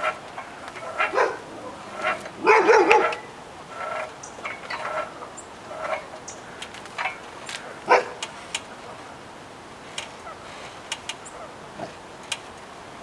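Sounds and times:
dog barking: 0:01.0 - 0:03.3, 0:07.9 - 0:08.2.

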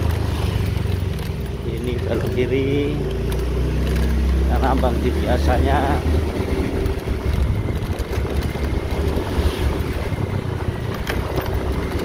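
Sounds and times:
small motorcycle engine running: 0:00.0 - 0:12.0
wind buffeting microphone: 0:05.3 - 0:12.0.

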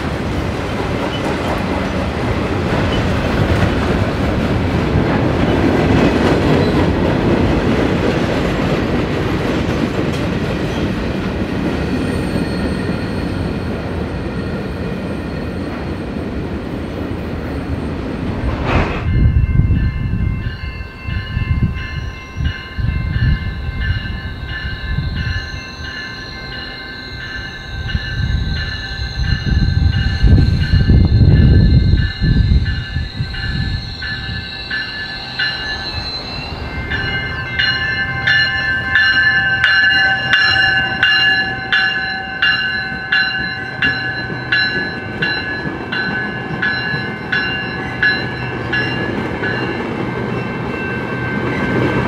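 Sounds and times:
train wheels rumbling on rail: 0:00.0 - 0:52.0
steady wavering high tones: 0:19.1 - 0:52.0.

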